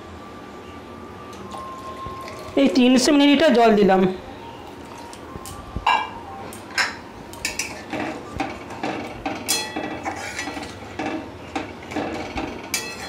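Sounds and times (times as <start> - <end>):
metal spatula scraping pan: 9.5 - 11.2.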